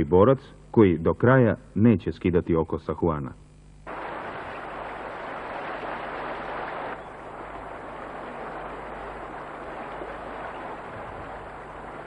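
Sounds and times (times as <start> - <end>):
faint low hum: 0.0 - 12.0
rushing outdoor field noise: 3.9 - 12.0.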